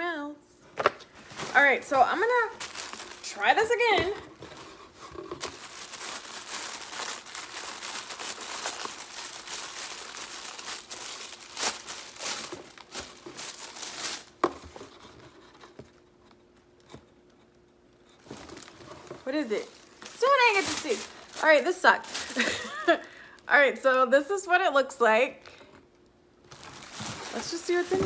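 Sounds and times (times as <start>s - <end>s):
tissue paper rustling: 1.1s - 15.0s, 18.2s - 23.4s, 26.5s - 28.0s.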